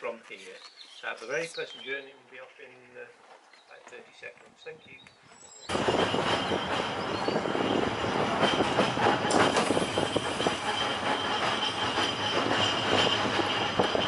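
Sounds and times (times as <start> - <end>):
tram rumbling on rails: 5.7 - 14.0.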